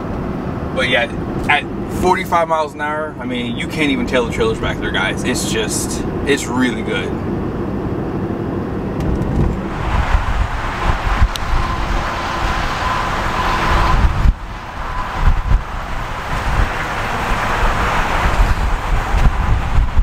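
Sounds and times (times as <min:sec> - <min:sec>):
road and engine noise inside truck: 0:00.0 - 0:20.0
wind buffeting microphone: 0:07.2 - 0:20.0.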